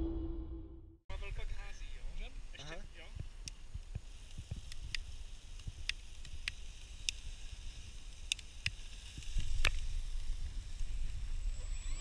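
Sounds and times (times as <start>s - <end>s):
sparklers fizzing: 1.3s - 12.0s
sharp crackling clicks: 3.2s - 11.2s.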